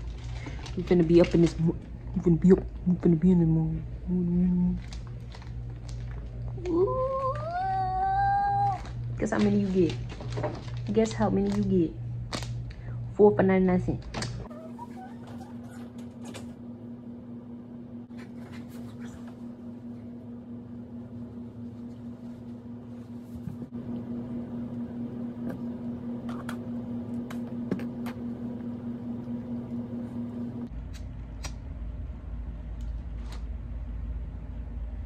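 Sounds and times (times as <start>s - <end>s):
steady low hum: 0.0s - 35.0s
wrap crinkling: 4.8s - 7.5s, 8.7s - 11.7s.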